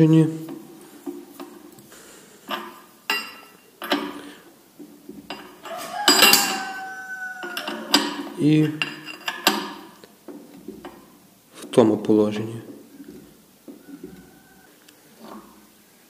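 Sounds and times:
hand tools clinking on metal: 0:02.4 - 0:04.4, 0:05.2 - 0:10.0
loud metal clang: 0:05.3 - 0:06.9.

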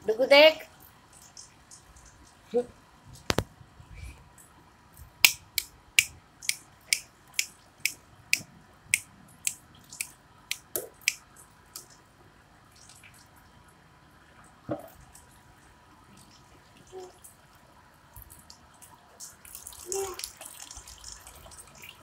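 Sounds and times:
running tap trickle: 0:18.2 - 0:22.0.

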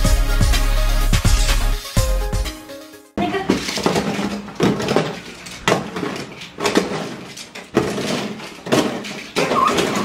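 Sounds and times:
metal toy cars clattering: 0:03.3 - 0:10.0.

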